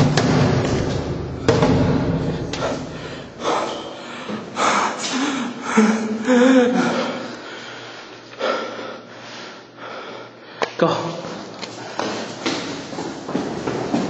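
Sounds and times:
thud: 0:00.0 - 0:02.8
person breathing hard: 0:02.2 - 0:10.8.

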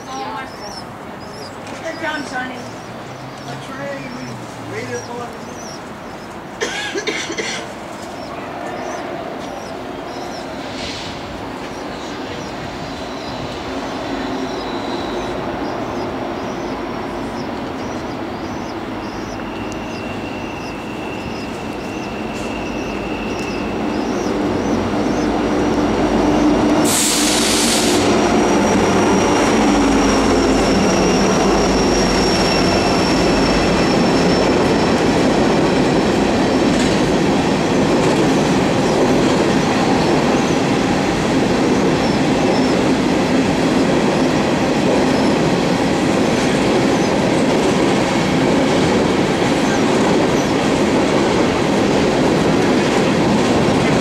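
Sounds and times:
diesel locomotives rumbling: 0:00.0 - 0:54.0
train cars rolling past: 0:00.0 - 0:54.0
brief hiss: 0:10.7 - 0:11.3, 0:26.9 - 0:28.1
high wheel squeals: 0:11.7 - 0:26.6, 0:27.2 - 0:35.1.

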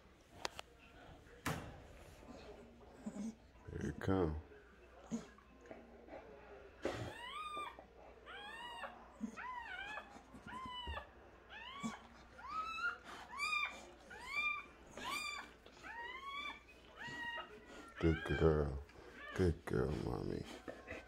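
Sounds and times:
puppies crying: 0:06.9 - 0:21.0.

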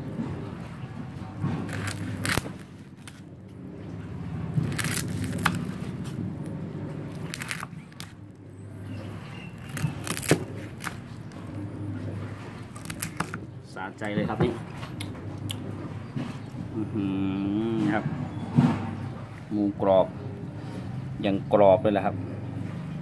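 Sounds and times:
steady low hum: 0:00.0 - 0:23.0
knife crunching crispy pork skin: 0:01.6 - 0:03.3, 0:04.5 - 0:06.2, 0:07.1 - 0:08.2, 0:09.6 - 0:11.4, 0:12.6 - 0:13.4.

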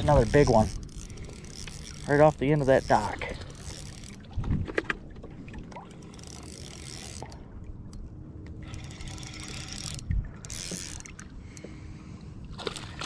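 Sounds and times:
fishing reel gears whirring: 0:00.0 - 0:04.3, 0:05.8 - 0:11.7.

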